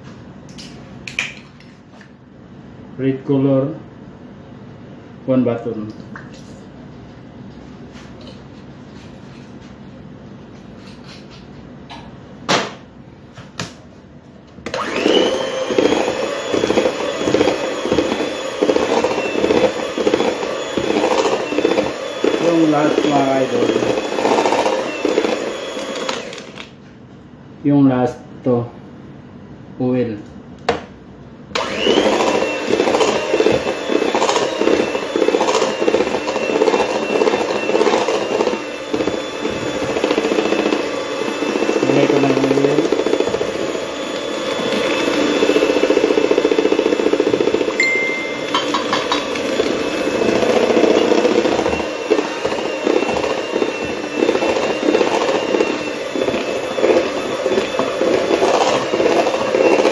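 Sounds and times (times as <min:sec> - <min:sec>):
electric hand mixer whirring: 0:14.6 - 0:26.8, 0:31.5 - 0:59.9
beaters churning batter in metal bowl: 0:14.7 - 0:26.8, 0:31.6 - 0:59.9.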